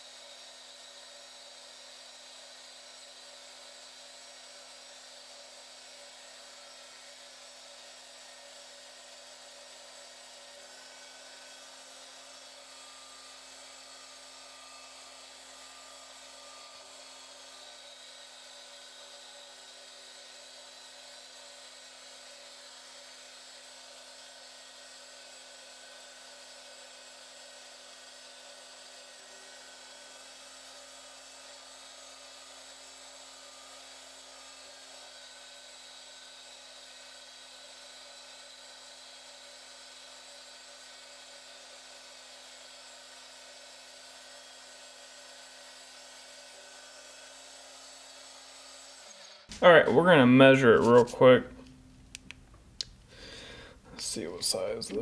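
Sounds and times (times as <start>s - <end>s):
lathe motor whine: 0.0s - 51.8s.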